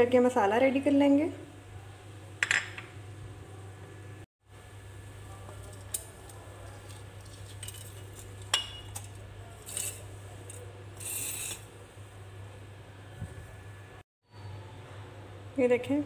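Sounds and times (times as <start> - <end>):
spices pouring rustle: 5.6 - 8.5.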